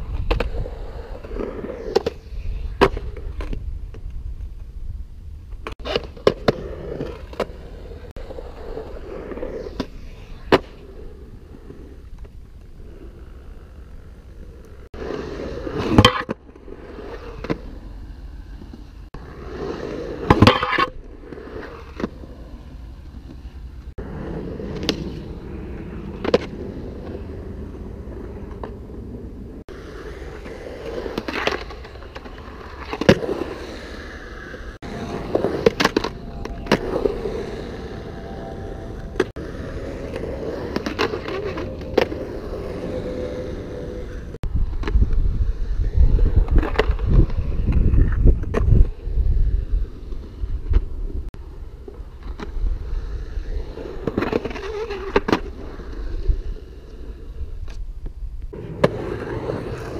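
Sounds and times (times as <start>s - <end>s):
skateboard wheels rolling on concrete: 0.0s - 59.9s
skateboard clacking on ground: 15.8s - 16.6s, 20.2s - 22.2s, 34.8s - 45.2s.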